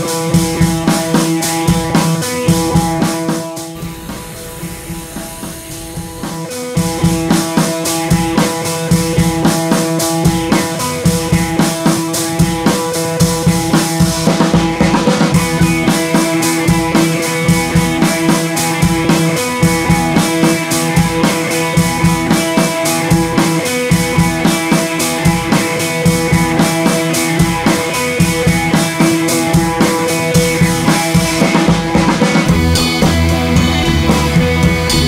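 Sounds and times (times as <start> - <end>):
steady drum beat: 0.0 - 35.0
held synth tones: 3.6 - 7.6.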